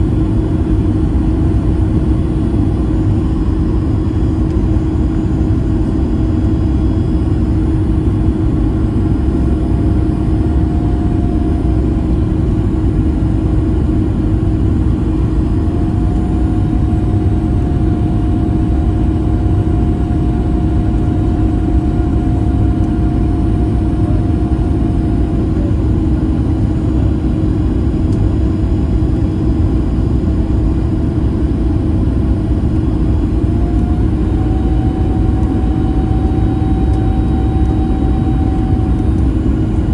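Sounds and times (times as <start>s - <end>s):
airplane cabin rumble: 0.0s - 39.9s
high engine tone: 33.4s - 39.9s.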